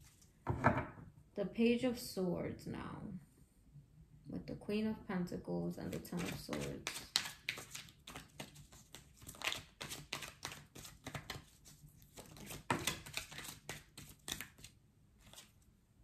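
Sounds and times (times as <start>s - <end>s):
cards snapping and rustling: 6.2s - 15.5s.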